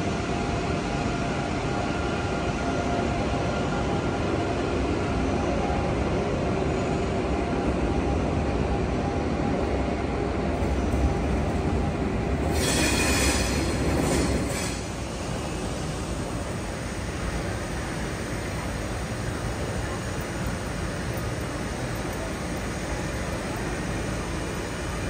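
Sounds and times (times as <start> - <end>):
train low rumble: 0.0 - 25.0
wheels squealing on rails: 10.6 - 25.0.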